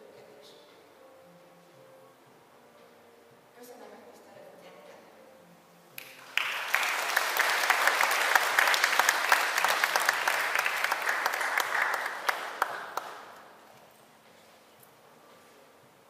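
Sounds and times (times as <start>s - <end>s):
audience applauding: 6.0s - 13.5s.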